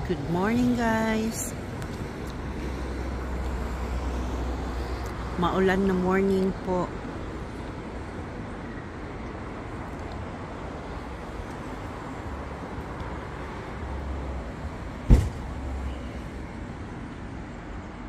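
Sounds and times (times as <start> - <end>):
distant road traffic: 0.0 - 18.0
sharp low thump: 15.1 - 15.5.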